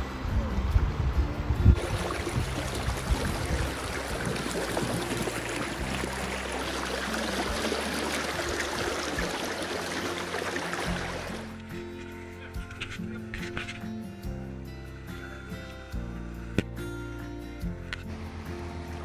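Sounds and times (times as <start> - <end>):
river water rushing: 1.8 - 11.8.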